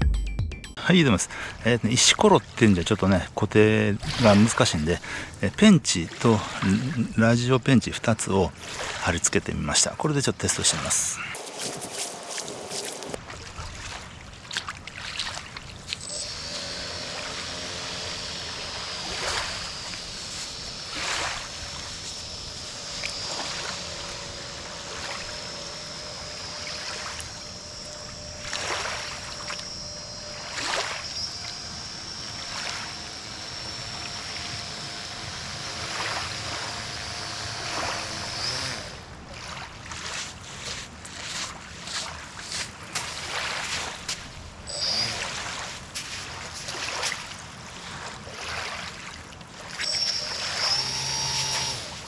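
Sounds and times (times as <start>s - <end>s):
water lapping and splashing: 4.0s - 7.0s, 8.6s - 9.3s, 11.2s - 16.6s, 19.1s - 22.0s, 22.6s - 32.0s, 38.9s - 49.8s
electric motor high whine: 11.2s - 13.2s, 15.9s - 39.2s, 44.7s - 45.3s, 49.8s - 52.0s.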